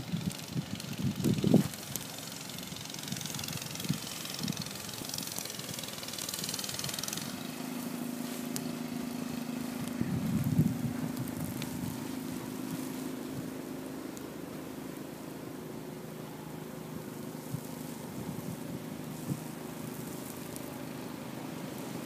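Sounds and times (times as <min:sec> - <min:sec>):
wind gusts on microphone: 0:00.0 - 0:02.0, 0:09.7 - 0:12.4, 0:17.5 - 0:19.6
snowblower engine running: 0:00.0 - 0:22.0.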